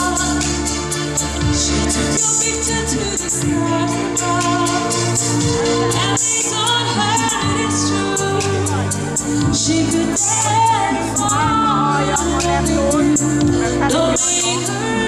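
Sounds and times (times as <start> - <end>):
pop backing track: 0.0 - 15.0
woman singing into microphone: 0.0 - 15.0.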